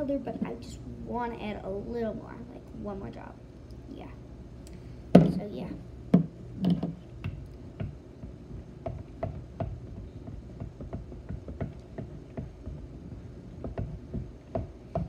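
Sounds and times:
spatula stirring glue: 6.8 - 15.0.

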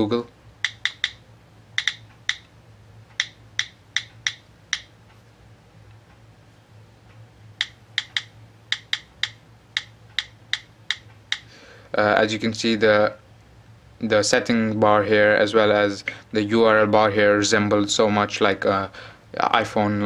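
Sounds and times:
faint low hum: 0.0 - 20.0
phone keyboard clicks: 0.6 - 1.2, 1.8 - 2.5, 3.1 - 4.9, 7.6 - 11.5.

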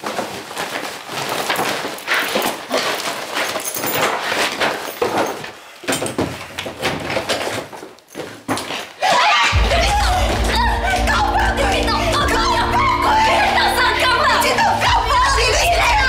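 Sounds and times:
paper bag rustling: 0.0 - 5.8.

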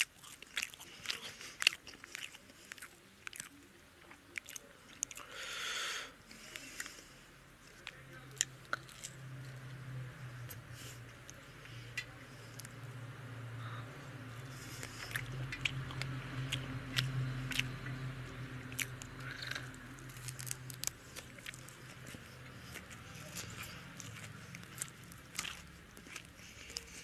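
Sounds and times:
wet chewing and biting: 0.0 - 5.5, 7.7 - 13.0, 13.8 - 27.0
low hum: 6.8 - 27.0.

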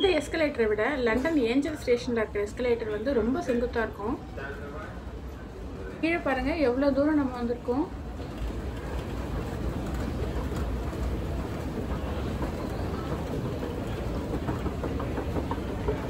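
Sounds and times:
escalator rumbling and rattling: 8.0 - 16.0.

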